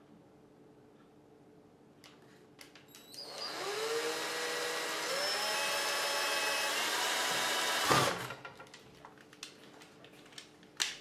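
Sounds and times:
cordless drill boring: 3.1 - 8.3.

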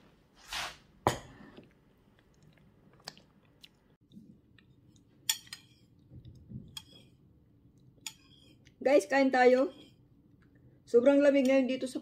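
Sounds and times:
soft chewing: 1.6 - 8.8.

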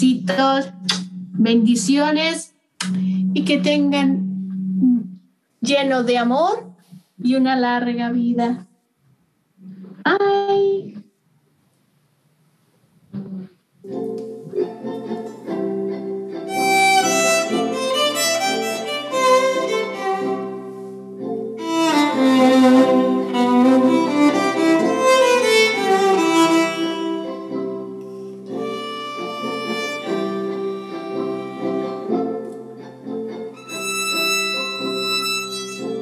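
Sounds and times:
bowed violin melody: 15.0 - 36.0.

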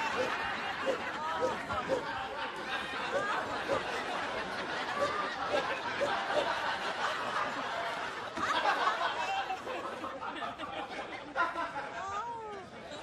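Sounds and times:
studio audience laughing: 0.0 - 12.1.

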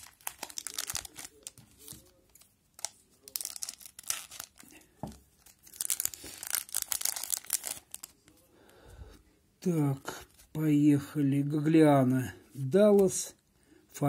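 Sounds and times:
wrapper tearing and crinkling: 0.0 - 2.2, 2.8 - 4.8, 5.4 - 8.2.

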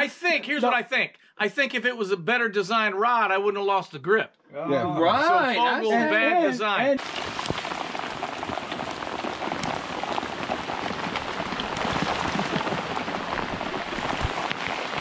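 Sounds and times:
hard rain on water: 7.0 - 15.0.

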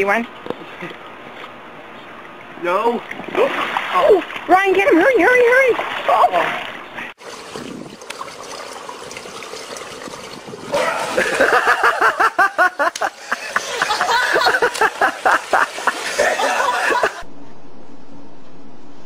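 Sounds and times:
people laughing hard: 10.8 - 17.2.

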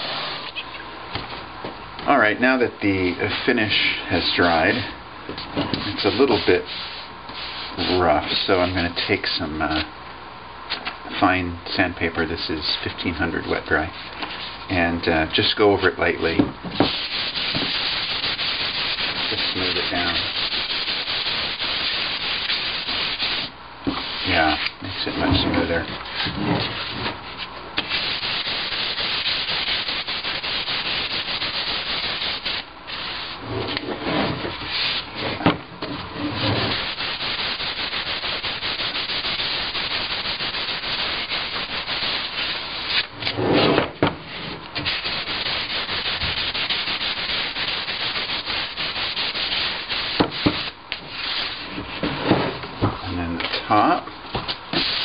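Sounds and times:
sandpaper rubbing on wood: 5.8 - 8.4, 16.8 - 33.4, 34.5 - 35.1, 36.2 - 43.1, 44.8 - 51.6, 54.8 - 55.0.

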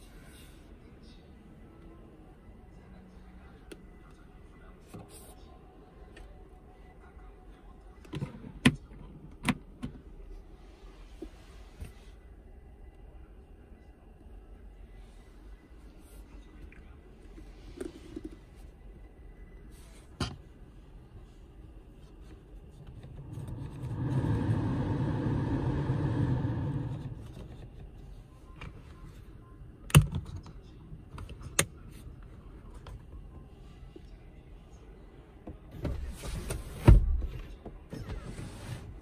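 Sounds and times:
fan blowing air: 21.1 - 28.0.

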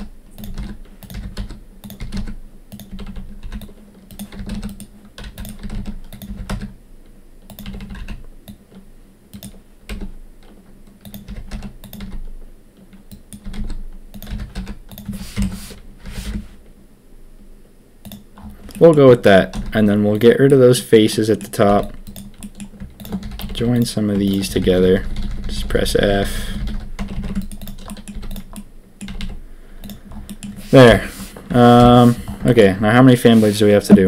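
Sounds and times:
keyboard keys clicking: 0.0 - 6.7, 7.4 - 12.3, 12.9 - 15.5, 21.4 - 25.5, 26.6 - 30.6
faint low hum: 0.0 - 34.0.

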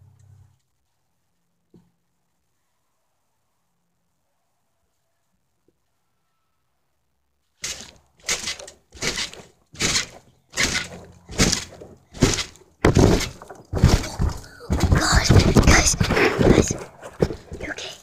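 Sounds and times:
trampoline mat thumping: 7.6 - 17.9.

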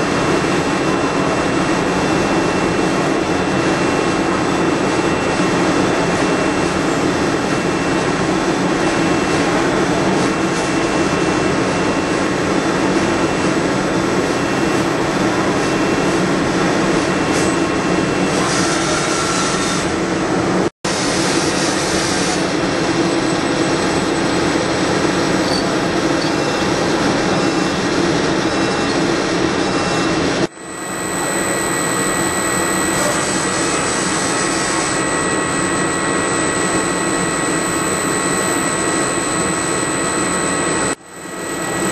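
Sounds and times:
lathe machining: 21.7 - 41.9
low hum: 30.5 - 41.9.

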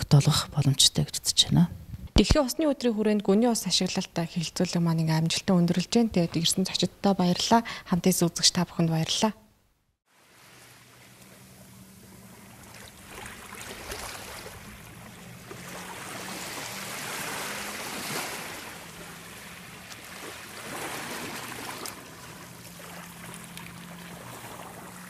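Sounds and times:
water sloshing and rushing: 10.1 - 25.0
low steady hum: 10.2 - 25.0.

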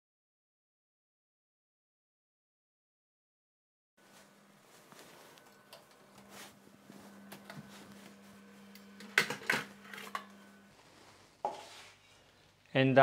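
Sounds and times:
steady low hum: 4.0 - 12.7.

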